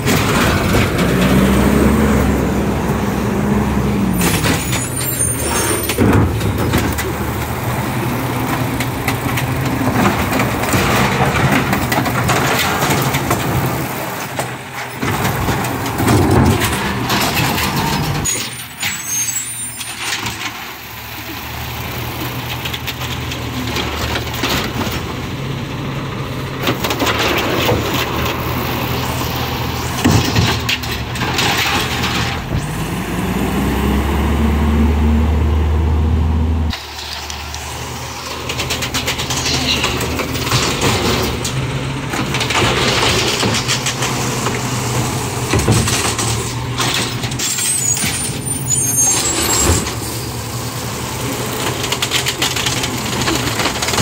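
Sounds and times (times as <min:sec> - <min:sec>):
truck engine running: 0:00.0 - 0:18.2
bins and machinery knocking: 0:05.8 - 0:07.6, 0:08.4 - 0:18.8, 0:29.8 - 0:32.7, 0:38.4 - 0:48.4.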